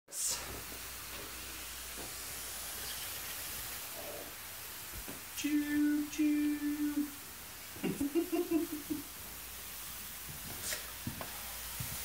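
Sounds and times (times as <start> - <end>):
faint hiss: 0.1 - 12.0
person humming: 5.4 - 7.2, 7.8 - 9.0.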